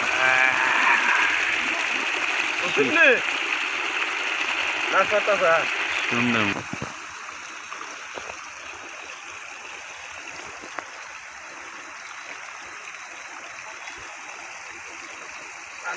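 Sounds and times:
rainwater flowing: 0:00.0 - 0:15.9.

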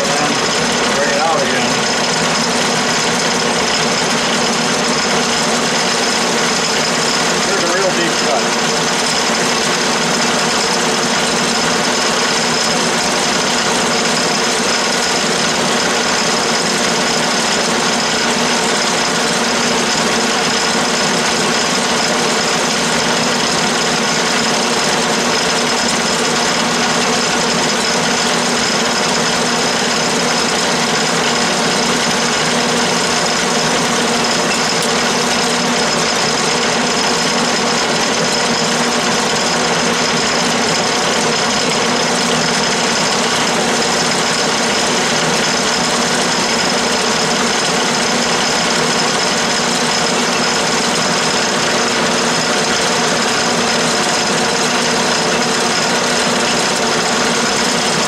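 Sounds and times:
lathe running with mechanical whine: 0:00.0 - 0:58.0.

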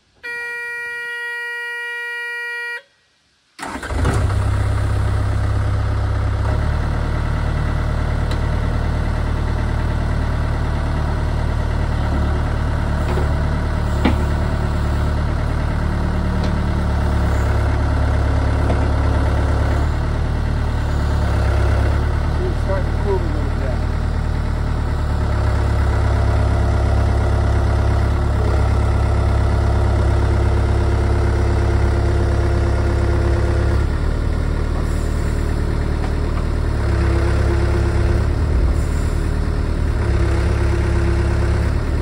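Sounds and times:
warning buzzer beep: 0:00.2 - 0:02.9
diesel engine starting and running: 0:03.6 - 0:42.0.

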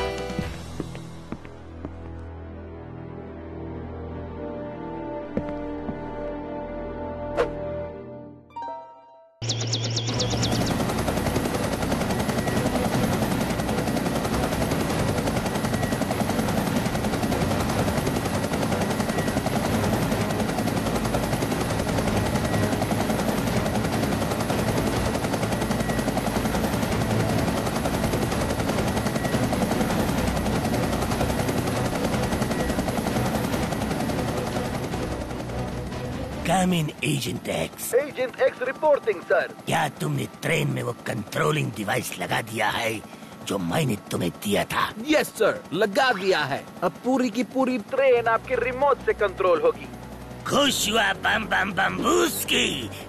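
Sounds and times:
engine drone: 0:09.4 - 0:36.4.

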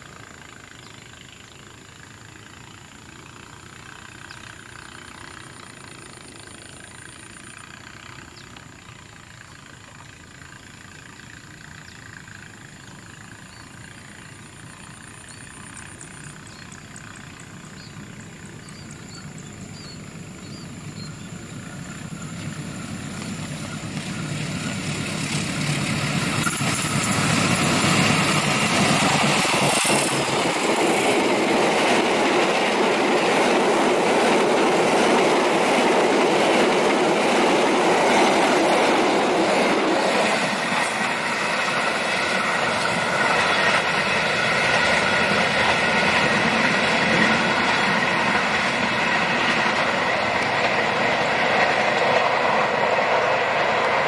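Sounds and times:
diesel locomotive engine: 0:00.0 - 0:54.0
train wheels rushing on rail: 0:00.0 - 0:54.0
clickety-clack over rail joints: 0:02.0 - 0:54.0.

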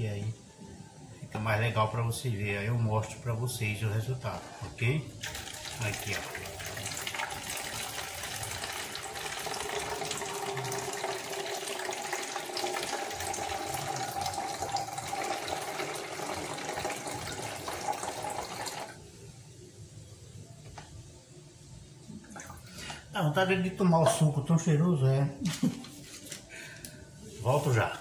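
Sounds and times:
juice trickling into bottle: 0:05.2 - 0:19.0, 0:22.2 - 0:23.0.

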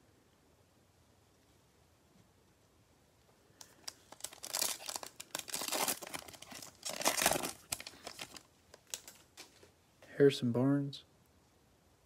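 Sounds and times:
foil wrapper crinkling and ripping: 0:03.6 - 0:09.6.

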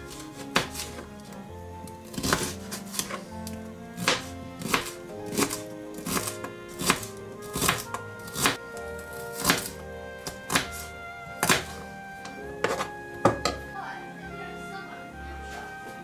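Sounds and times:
background music with held notes: 0:00.0 - 0:16.0
knife chopping on cutting board: 0:00.1 - 0:01.1, 0:02.0 - 0:03.3, 0:04.0 - 0:13.6.

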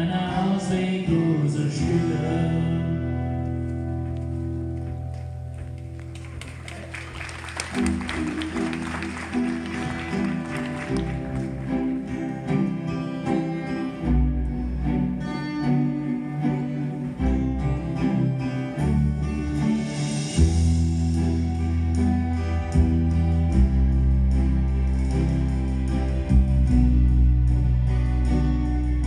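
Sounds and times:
acoustic guitars playing: 0:00.0 - 0:06.2, 0:07.3 - 0:29.0
deep bass notes: 0:11.0 - 0:29.0.

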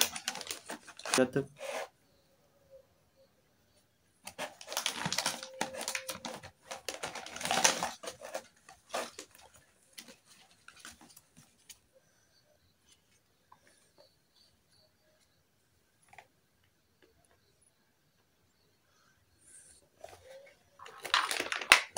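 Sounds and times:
plastic bag crinkling: 0:00.0 - 0:01.8, 0:04.2 - 0:11.2, 0:20.0 - 0:21.9.

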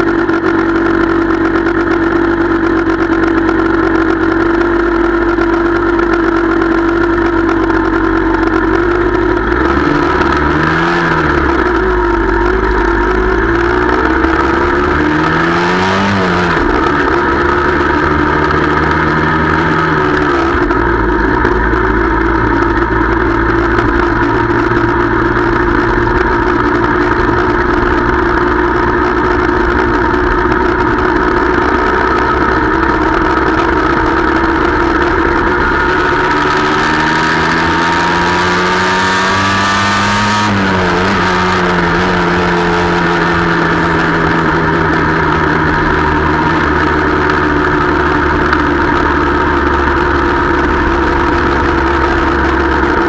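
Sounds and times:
motorcycle engine running: 0:00.0 - 0:53.0.

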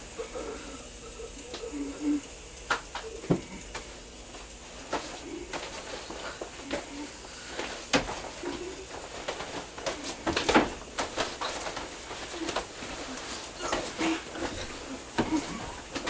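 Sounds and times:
knocks and thumps of people moving: 0:04.8 - 0:16.0.

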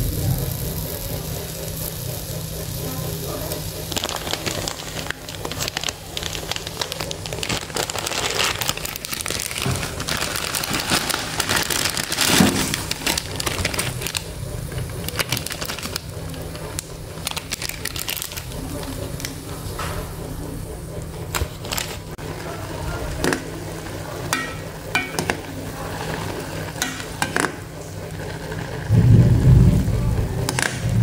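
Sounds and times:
plastic packet crinkling: 0:03.2 - 0:19.4, 0:21.2 - 0:27.2.

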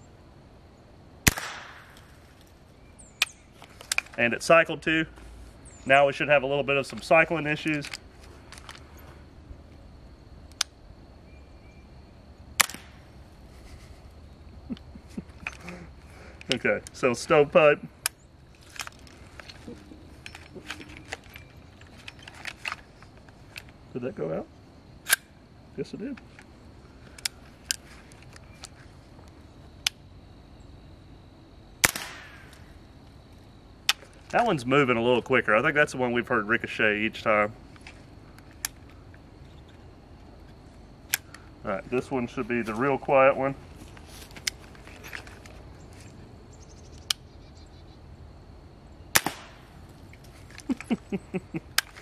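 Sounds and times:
suppressed rifle shot: 0:01.2 - 0:02.1, 0:12.6 - 0:13.0, 0:31.8 - 0:32.5, 0:49.1 - 0:49.7
metallic clicks of rifle handling: 0:03.2 - 0:04.2, 0:07.7 - 0:08.8, 0:18.0 - 0:23.8, 0:25.0 - 0:25.3, 0:26.2 - 0:28.8, 0:37.7 - 0:39.0, 0:51.7 - 0:52.0.

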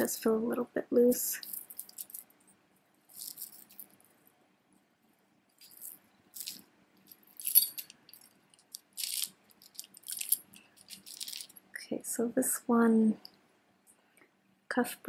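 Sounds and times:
jewelry rattling and clinking: 0:01.3 - 0:04.2, 0:05.5 - 0:11.8.

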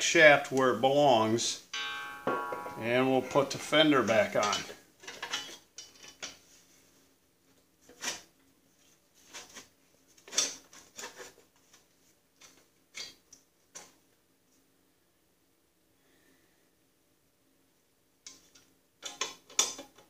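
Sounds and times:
light metal clinks and knocks: 0:01.8 - 0:06.4.

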